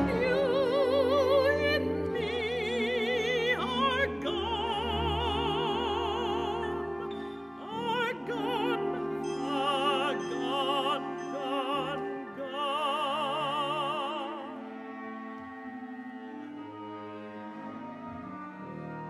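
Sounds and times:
woman singing with vibrato: 0:00.0 - 0:14.6
chamber orchestra chords: 0:00.0 - 0:19.0.

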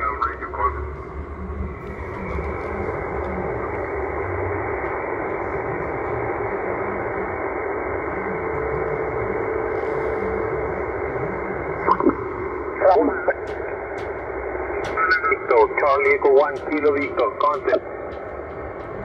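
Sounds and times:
radio band noise hiss: 0:00.0 - 0:19.0.

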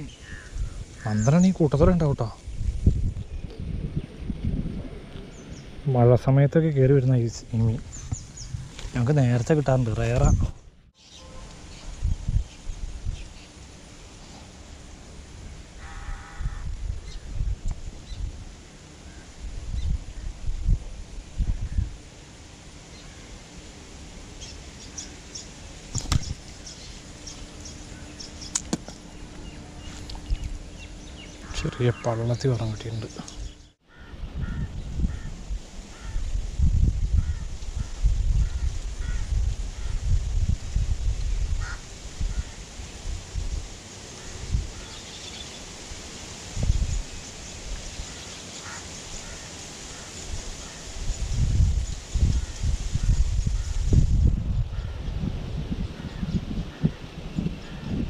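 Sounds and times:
faint bird calls: 0:00.0 - 0:01.4, 0:15.8 - 0:17.2, 0:24.4 - 0:36.3, 0:37.1 - 0:40.1, 0:41.6 - 0:42.6, 0:44.1 - 0:45.6, 0:48.0 - 0:50.9
low rumbles on microphone: 0:00.0 - 0:06.5, 0:07.4 - 0:10.9, 0:11.7 - 0:13.4, 0:19.4 - 0:22.0, 0:26.0 - 0:43.7, 0:51.1 - 0:58.0
small birds chirping: 0:07.7 - 0:14.5, 0:24.4 - 0:35.3
stream: 0:44.8 - 0:51.2.

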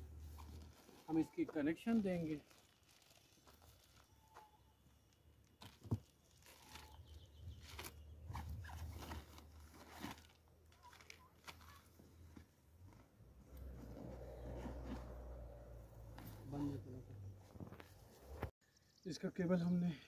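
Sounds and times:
plastic bags rustling: 0:00.3 - 0:04.3.

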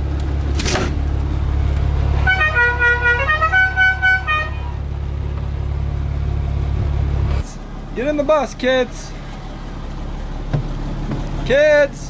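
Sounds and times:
low engine hum: 0:00.0 - 0:12.0
musical horn playing a tune: 0:02.2 - 0:04.8.

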